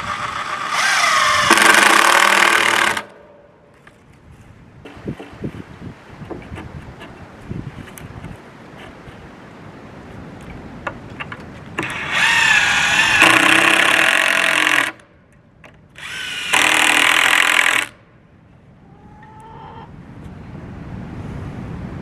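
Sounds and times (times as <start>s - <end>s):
cordless drill driving screws: 0.0s - 3.1s, 11.8s - 15.0s, 16.0s - 17.9s.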